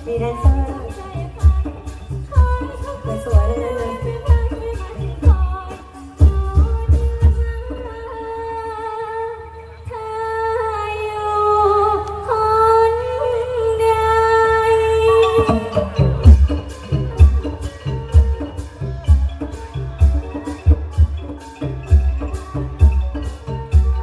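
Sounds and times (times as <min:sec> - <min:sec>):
heavy drum beats: 0:00.0 - 0:07.8, 0:15.3 - 0:24.0
band backing music: 0:00.0 - 0:10.6, 0:11.2 - 0:24.0
woman singing through microphone: 0:00.0 - 0:16.5.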